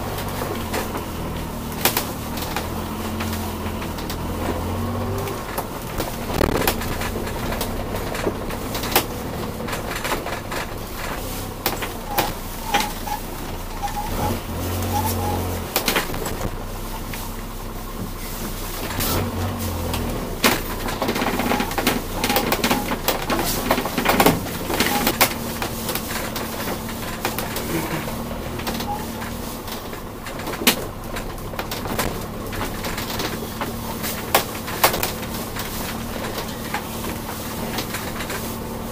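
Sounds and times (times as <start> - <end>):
engine droning: 0.0 - 38.9
vehicle interior rattling: 0.0 - 38.9.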